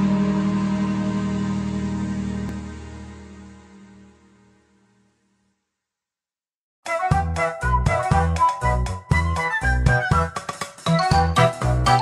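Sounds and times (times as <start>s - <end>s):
music of held notes: 6.9s - 12.0s.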